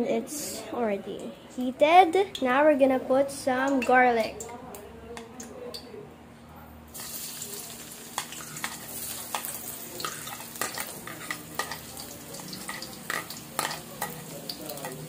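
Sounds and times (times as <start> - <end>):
garlic sizzling in hot oil: 6.9 - 15.0
ladle scraping wok: 7.0 - 15.0.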